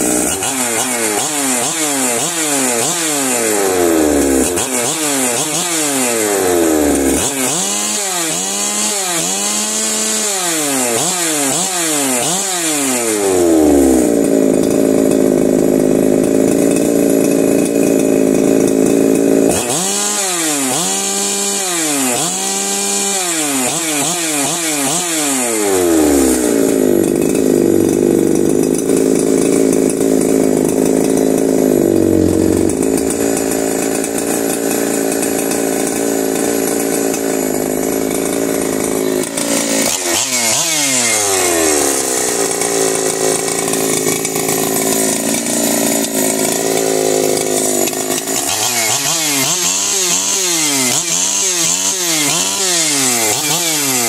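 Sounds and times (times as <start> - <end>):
chainsaw idling and revving: 0.0 - 54.0.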